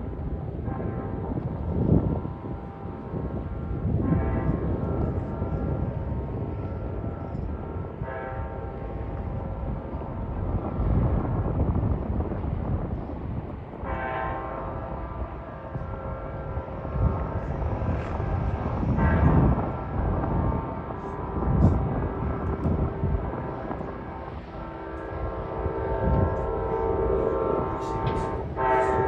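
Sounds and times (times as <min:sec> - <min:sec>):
low train rumble: 0:00.0 - 0:29.0
locomotive air horn blasts: 0:20.7 - 0:29.0.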